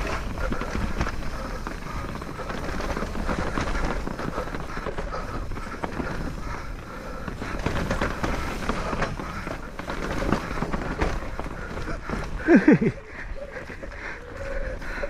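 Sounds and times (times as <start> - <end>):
bike rattling and clicking: 0.0 - 15.0
bike tyres on dirt: 0.0 - 15.0.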